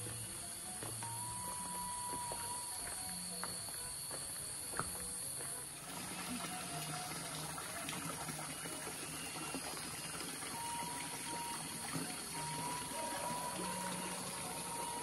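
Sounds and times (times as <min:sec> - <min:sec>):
faint high tones: 0:00.0 - 0:07.8, 0:10.5 - 0:15.0
running water: 0:05.7 - 0:15.0.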